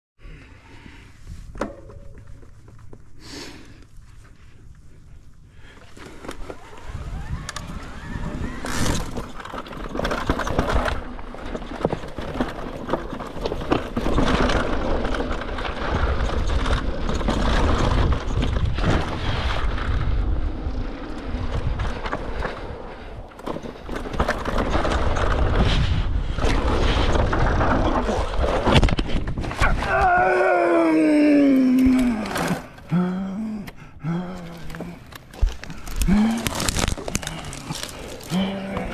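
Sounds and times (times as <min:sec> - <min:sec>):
bike clicks and knocks: 0:01.5 - 0:03.2, 0:05.7 - 0:19.2, 0:21.0 - 0:25.8
wind rumble on microphone: 0:14.3 - 0:30.2
tyres crunching over dirt and stones: 0:33.6 - 0:38.9.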